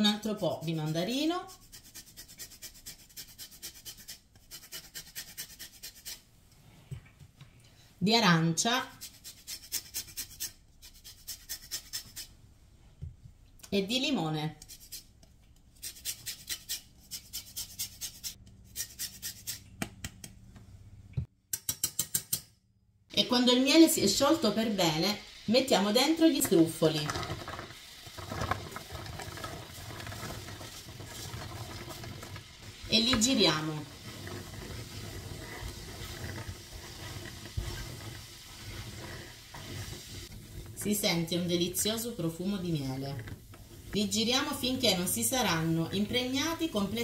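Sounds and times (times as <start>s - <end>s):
grater scraping lemon: 0.7s - 6.2s, 8.9s - 12.3s, 14.6s - 15.1s, 15.8s - 19.7s
spatula scraping frying pan: 26.3s - 40.9s.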